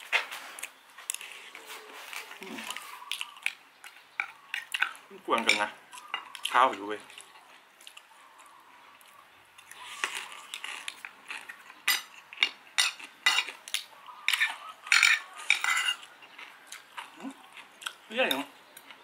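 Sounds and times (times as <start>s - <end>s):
cutlery scraping on plate: 11.9s - 13.6s, 14.2s - 16.1s.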